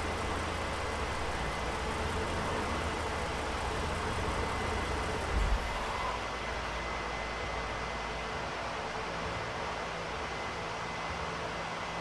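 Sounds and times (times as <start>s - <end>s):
car engine idling: 0.0s - 5.7s.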